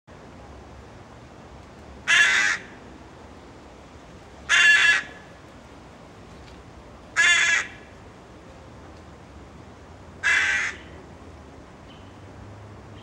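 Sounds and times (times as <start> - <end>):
crow cawing: 2.1 - 2.8, 4.5 - 5.2, 7.2 - 7.8, 10.2 - 10.9.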